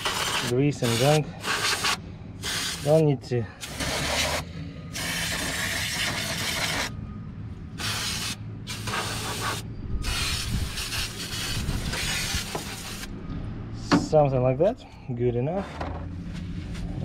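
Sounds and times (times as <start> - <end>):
aerosol spray hissing: 7.8 - 13.1.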